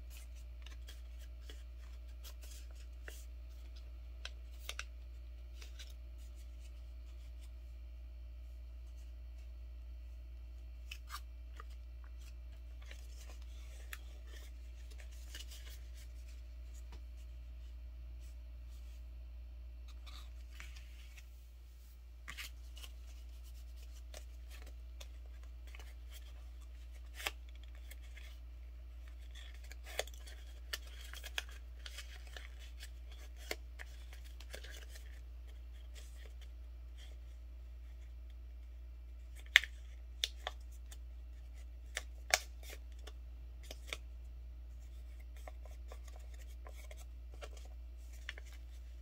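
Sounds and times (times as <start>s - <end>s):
steady low hum: 0.0s - 49.0s
paper rustling and crinkling: 29.0s - 37.2s, 44.7s - 49.0s.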